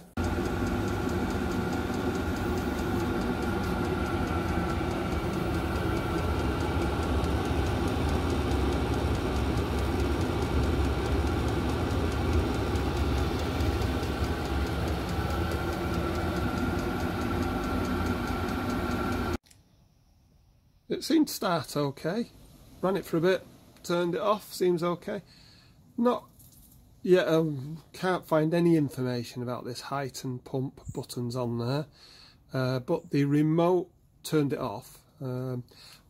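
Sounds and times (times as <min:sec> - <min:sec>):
blower fan whine: 0:00.0 - 0:19.4
heater low rumble: 0:00.0 - 0:19.4.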